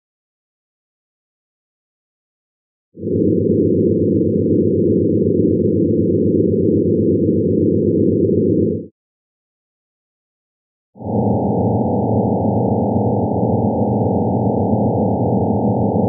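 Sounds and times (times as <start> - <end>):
steady pure tones in low chord: 3.0 - 8.9, 11.0 - 16.0.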